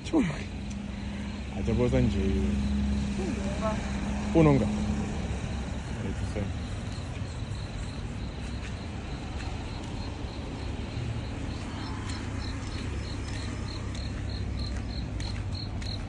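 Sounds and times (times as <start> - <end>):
crickets chirping: 0.0 - 16.0.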